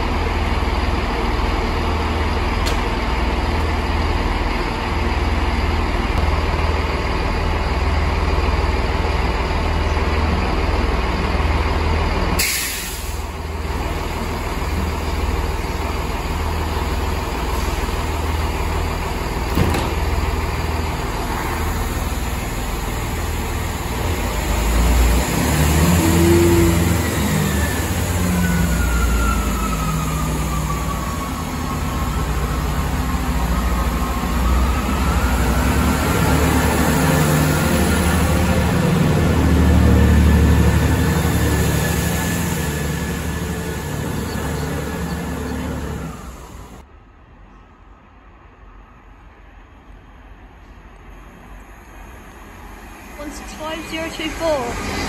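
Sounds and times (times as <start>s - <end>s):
train diesel engine idling: 0.0s - 46.9s, 52.6s - 55.0s
hiss of released air: 12.4s - 13.4s.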